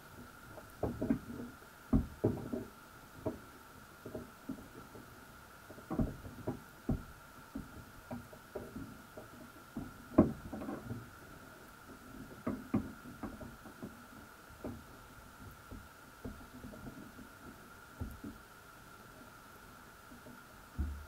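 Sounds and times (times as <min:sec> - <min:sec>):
dull underwater knocks: 0:00.8 - 0:03.4, 0:05.8 - 0:11.0, 0:15.6 - 0:18.4, 0:20.7 - 0:21.0.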